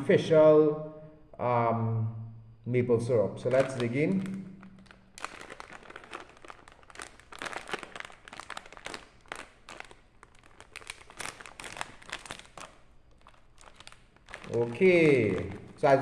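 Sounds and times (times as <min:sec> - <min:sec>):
plastic snack bag crinkling: 0:03.4 - 0:16.0.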